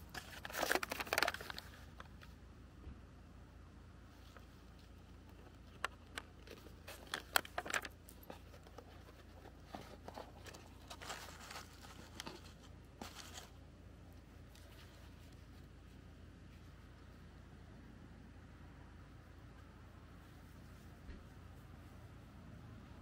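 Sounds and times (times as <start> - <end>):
plastic packaging crinkling: 0.0 - 2.1, 6.4 - 13.6.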